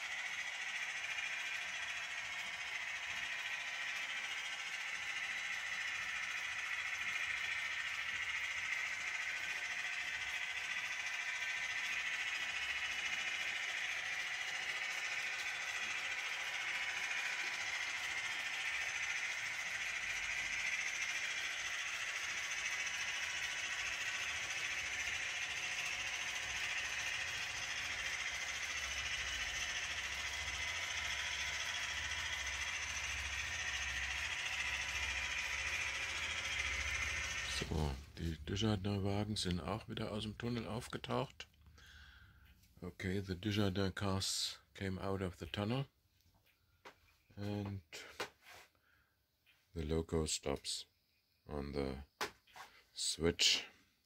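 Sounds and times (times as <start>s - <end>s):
model train wheels rattling on rails: 0.0s - 41.6s
low hum: 0.0s - 48.0s.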